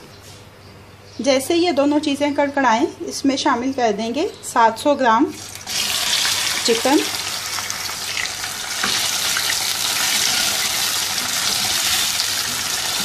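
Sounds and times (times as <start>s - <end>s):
chicken sizzling in hot oil: 5.3s - 13.0s.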